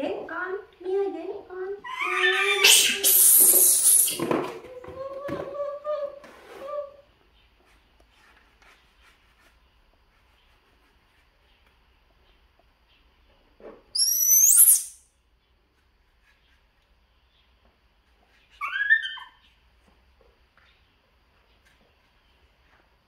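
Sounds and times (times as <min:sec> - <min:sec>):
soft gliding monkey calls: 0:01.8 - 0:04.2, 0:14.0 - 0:15.0, 0:18.4 - 0:19.6
baby monkeys squealing: 0:01.8 - 0:04.3, 0:14.0 - 0:15.0, 0:18.5 - 0:19.5.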